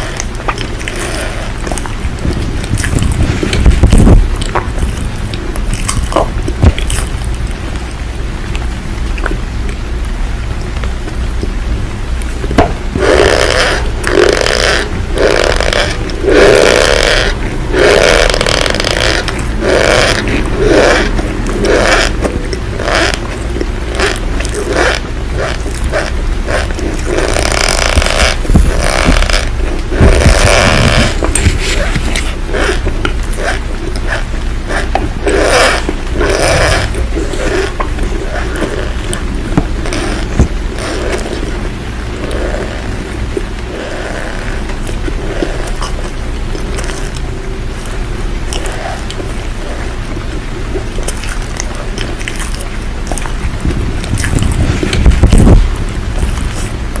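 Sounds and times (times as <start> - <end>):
crisp crunches: 0.0 - 9.8
crunching: 0.0 - 57.0
low hum: 0.0 - 57.0
low rumble: 0.0 - 57.0.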